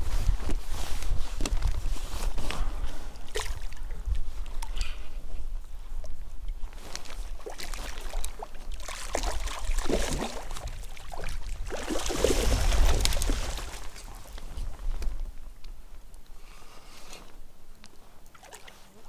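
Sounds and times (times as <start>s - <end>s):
fish thrashing and water splashing: 3.2s - 4.8s, 6.8s - 14.5s.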